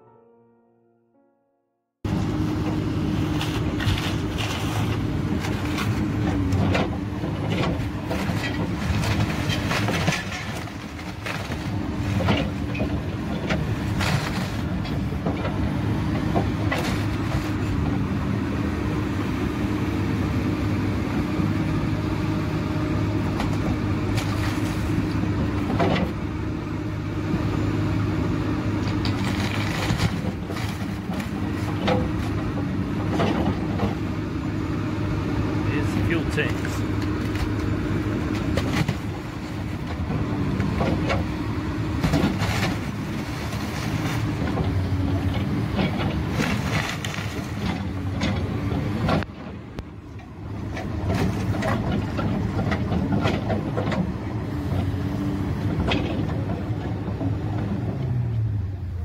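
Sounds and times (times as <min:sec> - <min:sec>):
excavator diesel engine running: 0:02.0 - 0:59.0
wood splintering and cracking: 0:28.9 - 0:32.4, 0:46.1 - 0:48.0.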